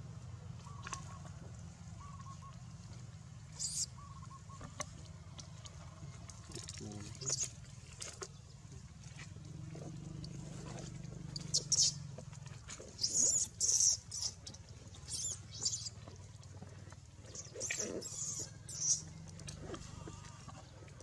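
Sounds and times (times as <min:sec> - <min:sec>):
infant monkey squealing: 0:03.6 - 0:03.9, 0:11.4 - 0:12.0, 0:13.0 - 0:14.4, 0:15.1 - 0:15.9, 0:17.4 - 0:19.1.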